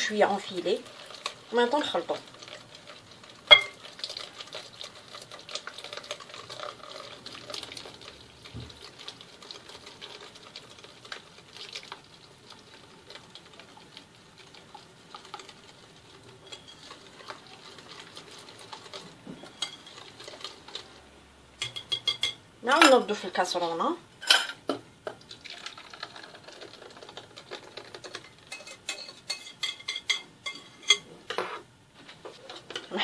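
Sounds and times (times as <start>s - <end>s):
whisk clicking on glass bowl: 16.4s - 20.9s, 21.6s - 22.4s.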